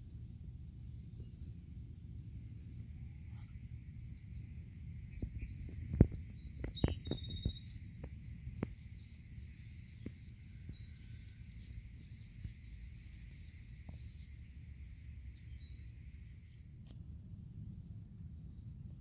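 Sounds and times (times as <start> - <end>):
steady low rumble: 0.0 - 19.0
faint bird chirps: 3.2 - 16.8.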